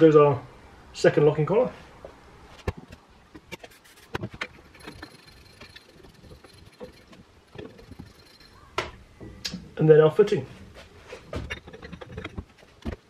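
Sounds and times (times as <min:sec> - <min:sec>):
metal collar clicking and knocking: 0:04.3 - 0:09.0, 0:11.4 - 0:13.0.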